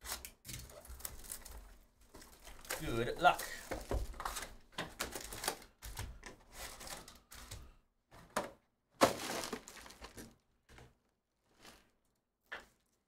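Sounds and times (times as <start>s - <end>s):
foil packs rustling and crackling: 0.0s - 7.7s, 9.0s - 10.4s.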